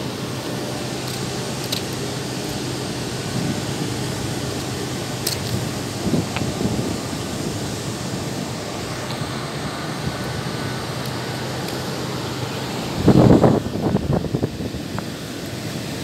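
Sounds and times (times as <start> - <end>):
wind rumbling on a microphone: 3.1 - 9.4, 12.9 - 15.2.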